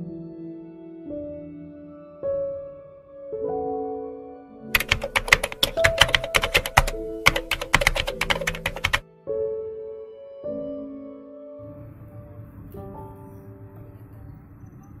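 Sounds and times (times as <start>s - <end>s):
soft background music: 0.0s - 15.0s
keyboard typing clicks: 4.8s - 9.0s.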